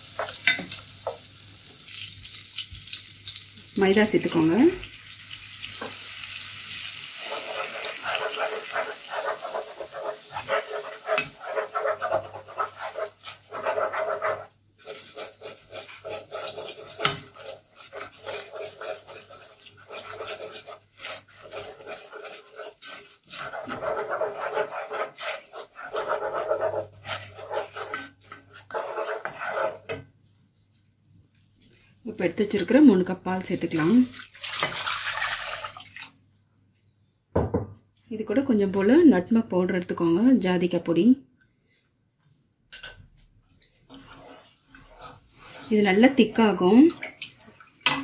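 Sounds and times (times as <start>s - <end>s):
wooden spoon scraping saucepan: 0.0s - 1.2s, 5.7s - 6.1s, 7.0s - 30.1s, 32.4s - 35.4s, 43.2s - 48.0s
butter sizzling: 0.0s - 30.0s.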